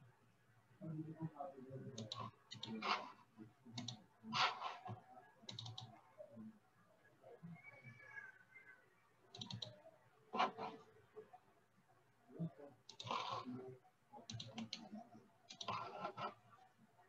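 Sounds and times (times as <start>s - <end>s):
low background murmur: 0.0s - 17.0s
mouse and keyboard clicks: 2.0s - 2.8s, 4.6s - 5.9s, 9.3s - 9.8s, 12.9s - 13.5s, 14.3s - 16.3s.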